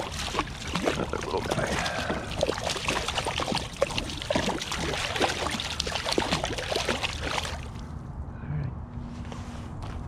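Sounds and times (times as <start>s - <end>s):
fish splashing water: 0.0s - 7.9s.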